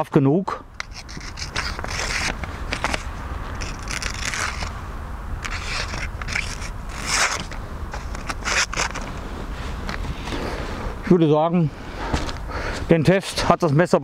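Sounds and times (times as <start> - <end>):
knife slicing paper: 5.5 - 9.0.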